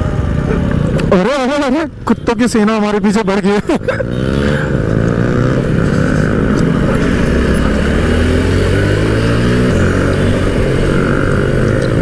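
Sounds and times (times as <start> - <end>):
motorcycle engine running: 3.8 - 12.0.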